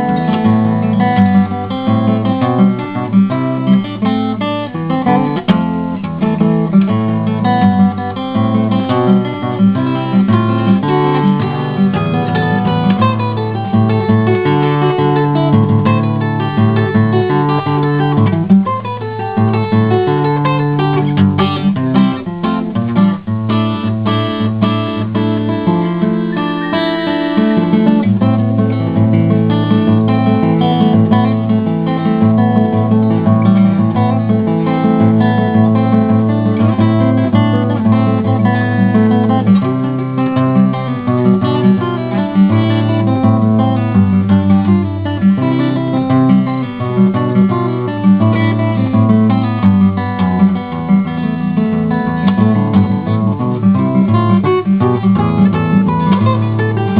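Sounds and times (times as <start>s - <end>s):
acoustic guitar music: 0.0s - 56.9s.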